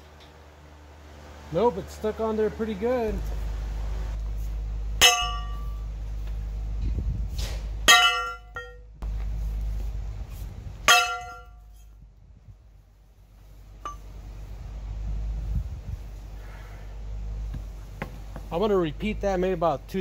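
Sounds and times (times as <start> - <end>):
sledgehammer clanging on metal vise: 5.0 - 5.8, 7.9 - 8.8, 10.9 - 11.6.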